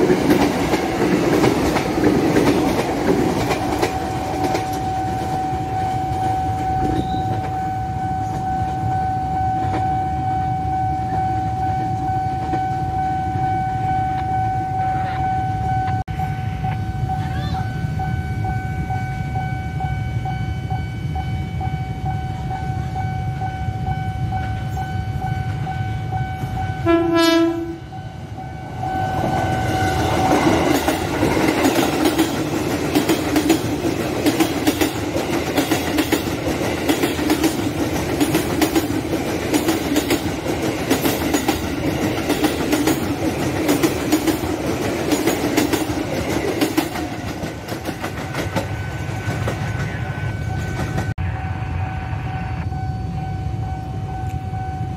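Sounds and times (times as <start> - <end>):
train horn blast: 26.4 - 28.0
electronic warning tone: 48.6 - 54.9
low rumble: 49.2 - 54.9.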